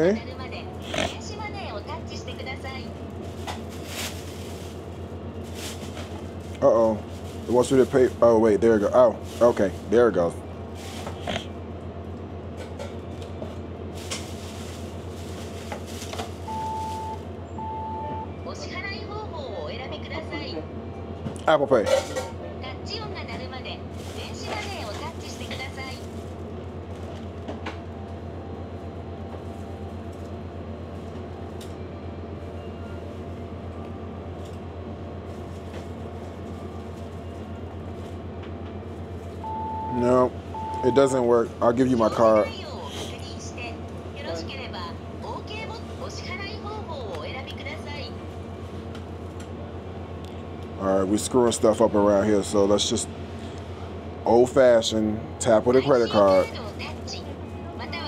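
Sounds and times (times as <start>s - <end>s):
plastic bag rustling: 3.1s - 10.1s, 10.7s - 11.4s, 13.9s - 17.2s, 23.9s - 26.5s.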